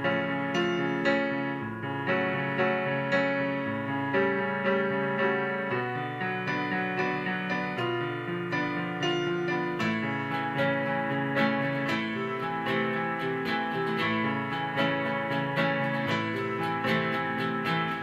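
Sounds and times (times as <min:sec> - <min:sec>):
keyboard piano: 0:00.0 - 0:18.0
acoustic guitar: 0:09.3 - 0:18.0.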